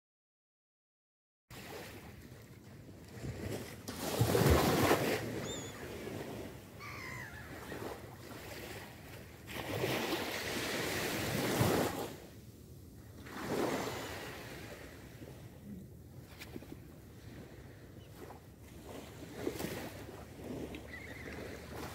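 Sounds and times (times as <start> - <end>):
sea waves washing up a beach: 1.5 - 21.9
gull cries: 5.4 - 6.0, 6.8 - 8.0.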